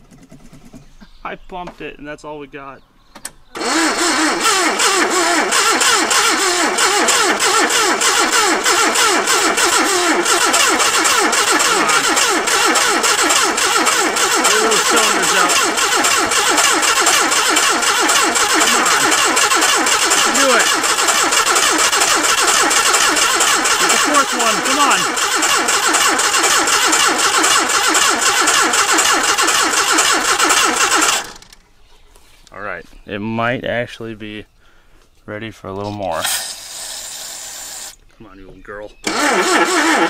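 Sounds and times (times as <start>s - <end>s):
starter motor cranking engine: 3.5s - 31.6s, 36.2s - 38.0s, 39.0s - 40.0s.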